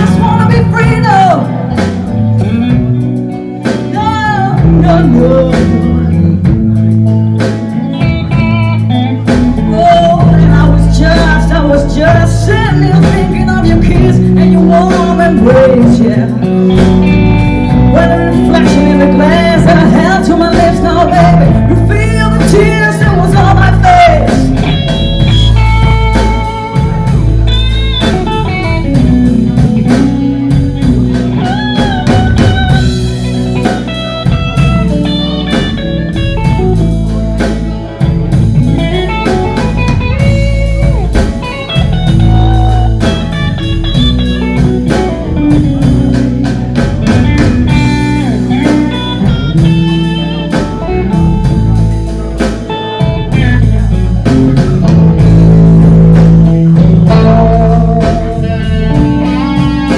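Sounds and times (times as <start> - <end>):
woman singing: 0.0 - 1.6, 3.8 - 6.2, 9.6 - 16.5, 17.8 - 24.7
bass line: 0.0 - 59.9
electric guitar: 0.0 - 59.9
drum beat: 22.5 - 59.9.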